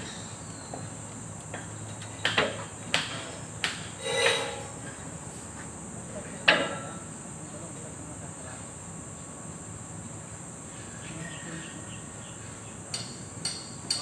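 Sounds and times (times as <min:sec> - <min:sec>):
hammer striking metal tube: 0:04.0 - 0:04.8.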